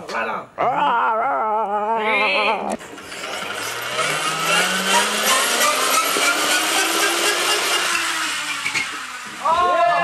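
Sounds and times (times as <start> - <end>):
toy flywheel whirring: 2.9 - 10.0.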